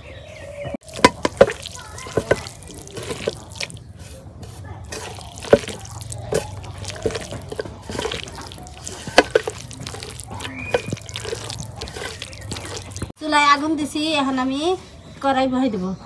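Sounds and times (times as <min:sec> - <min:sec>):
raw chicken squelching by hand: 0:00.8 - 0:13.1.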